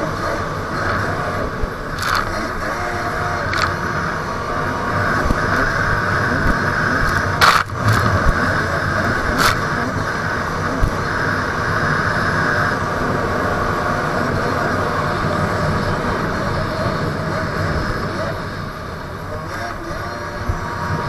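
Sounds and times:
wind and water rushing: 0.0s - 13.8s
jet ski engine running: 0.0s - 21.0s
water splashes on camera: 2.0s - 2.5s, 3.5s - 3.8s.

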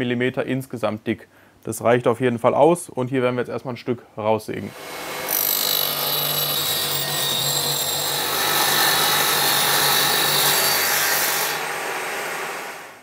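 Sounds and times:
table saw cutting metal: 4.7s - 13.0s.

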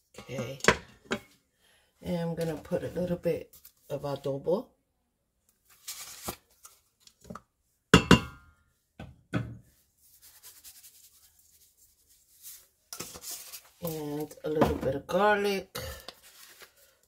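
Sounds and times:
knocks on pot: 8.0s - 8.4s
soft rustling: 9.9s - 14.4s
seasoning shaken from shaker: 10.0s - 13.7s.

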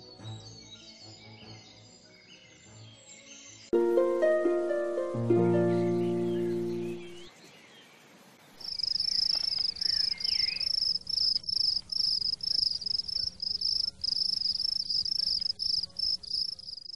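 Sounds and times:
insect buzzing trill: 8.6s - 16.9s.

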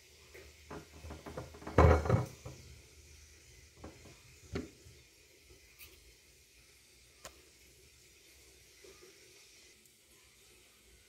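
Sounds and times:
clatter on glass plate: 0.7s - 2.6s.

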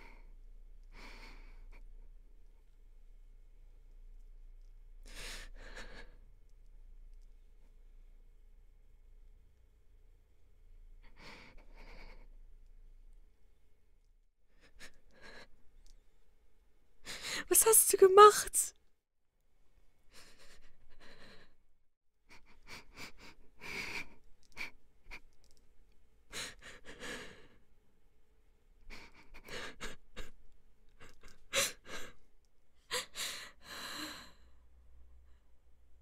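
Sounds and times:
girl crying and sobbing: 17.4s - 18.7s.

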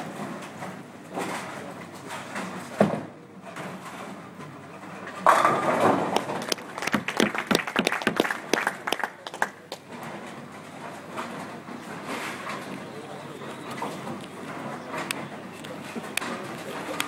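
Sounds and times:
bowling ball thump and rolling: 2.4s - 8.2s
bowling pins crashing: 4.9s - 8.6s.

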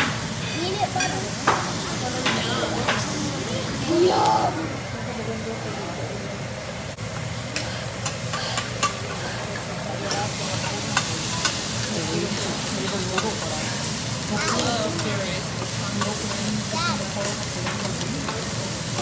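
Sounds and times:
rice sizzling on a griddle: 0.0s - 4.4s, 5.1s - 19.0s.

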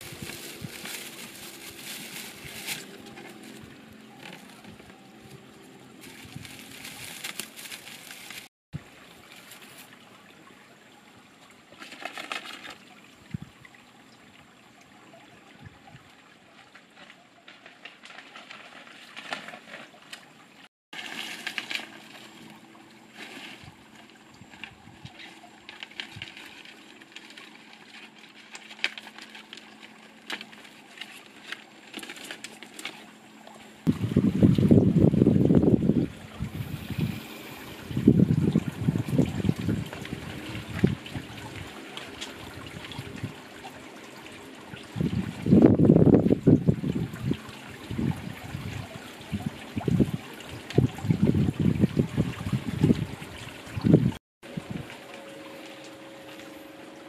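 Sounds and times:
soft paper rustles: 0.0s - 8.5s, 11.8s - 12.8s, 16.6s - 20.3s, 21.0s - 33.2s.

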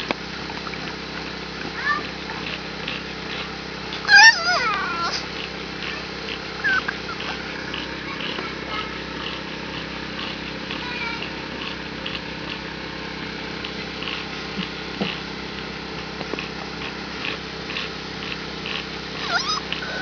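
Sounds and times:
puppies whining and squeaking: 3.9s - 9.1s, 19.1s - 20.0s.

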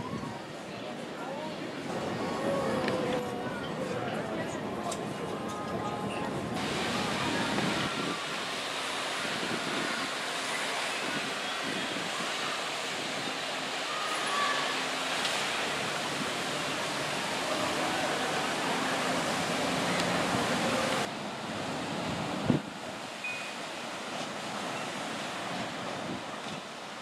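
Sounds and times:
faint distant voices: 0.0s - 21.1s
distant surf: 0.0s - 27.0s
wind: 0.0s - 27.0s
waves breaking on beach: 6.4s - 27.0s.

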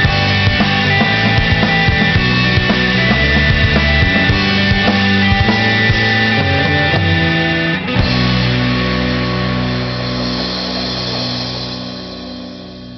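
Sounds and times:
final guitar chord ringing: 0.0s - 12.9s
rock band guitar and drums: 0.0s - 12.9s.

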